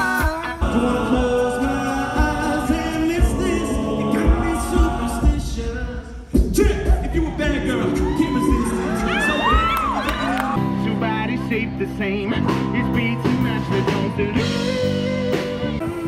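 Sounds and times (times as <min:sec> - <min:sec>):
rock band with guitars: 0:00.0 - 0:05.0, 0:07.8 - 0:16.0
male a cappella group singing: 0:00.0 - 0:08.0.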